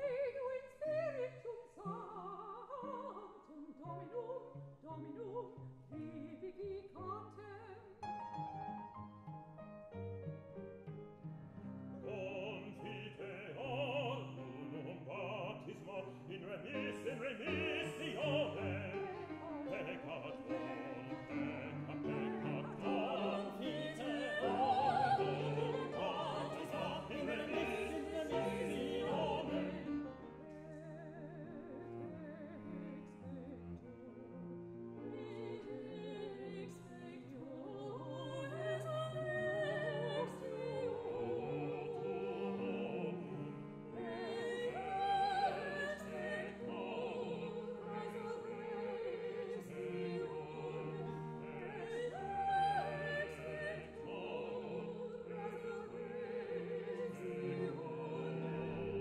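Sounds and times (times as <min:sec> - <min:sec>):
mixed choir singing: 0:12.0 - 0:34.0, 0:35.0 - 0:59.0.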